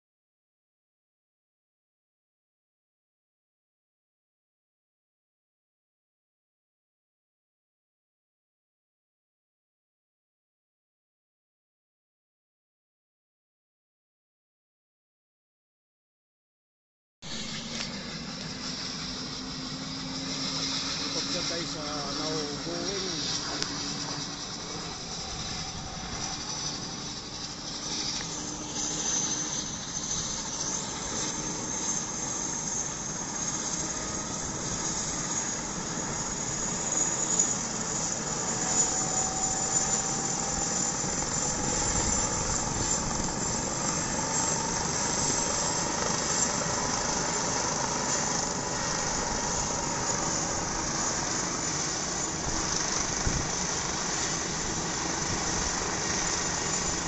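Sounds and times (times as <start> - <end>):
helicopter rotor and turbine: 17.2 - 57.0
high turbine whine: 17.2 - 57.0.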